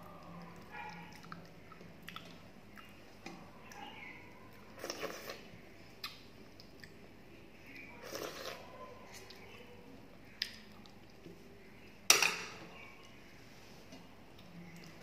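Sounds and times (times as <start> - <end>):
person chewing rice: 4.7 - 7.0.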